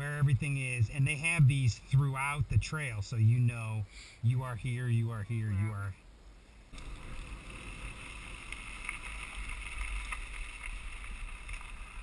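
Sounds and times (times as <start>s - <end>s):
low rumble: 6.7s - 12.0s
bike ticks and rattles: 6.8s - 12.0s.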